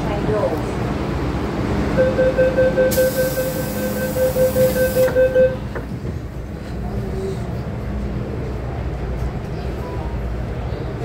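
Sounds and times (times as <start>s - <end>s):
train low hum: 0.0s - 11.0s
rapid warning beeps: 2.0s - 5.7s.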